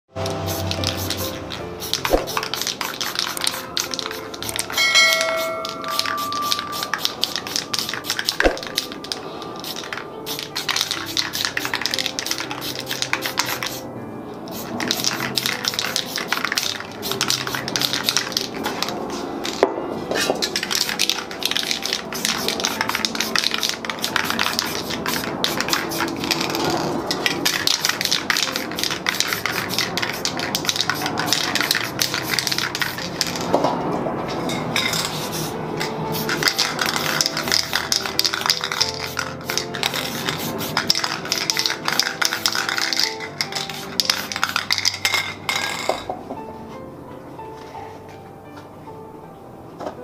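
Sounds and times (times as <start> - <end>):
music: 0.1 - 50.0
spray paint cans hissing: 0.2 - 33.7, 34.4 - 46.0
metal clatter of cans: 40.9 - 46.1.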